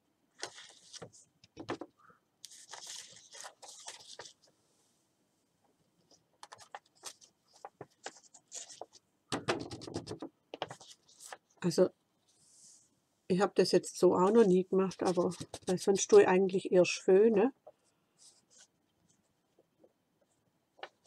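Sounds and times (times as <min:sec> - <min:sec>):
scratchy rubbing and scraping of paper: 0:00.4 - 0:01.3, 0:02.4 - 0:04.5, 0:06.1 - 0:09.0, 0:09.6 - 0:11.6, 0:14.2 - 0:16.1, 0:18.2 - 0:19.6
paper rustling: 0:00.4 - 0:04.5, 0:06.1 - 0:09.0, 0:09.6 - 0:11.6, 0:14.3 - 0:16.2.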